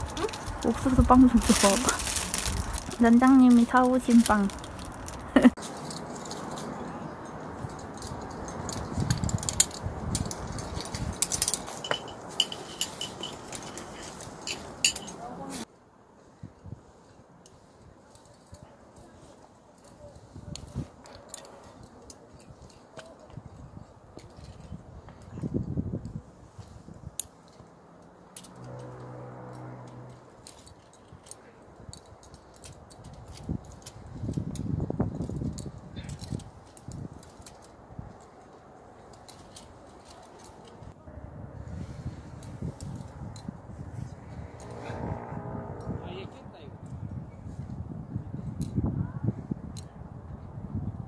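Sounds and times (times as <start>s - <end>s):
climbing hardware clinking: 0.0s - 15.4s, 18.1s - 25.8s, 26.6s - 40.9s.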